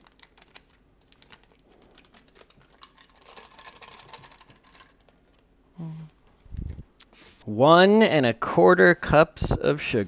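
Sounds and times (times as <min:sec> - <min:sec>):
wrapper crinkling: 0:00.0 - 0:05.4.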